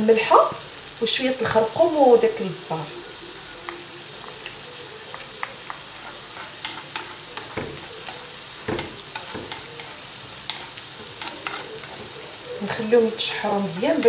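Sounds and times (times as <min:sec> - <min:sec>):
carrots sizzling in oil: 0:00.0 - 0:14.0
spatula scraping and tapping pan: 0:03.6 - 0:14.0.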